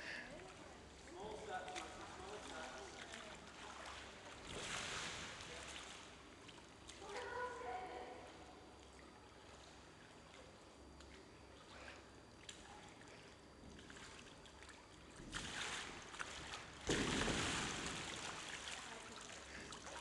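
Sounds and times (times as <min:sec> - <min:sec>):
water sloshing: 0:00.3 - 0:07.8, 0:08.8 - 0:20.0
thud: 0:16.9 - 0:18.0.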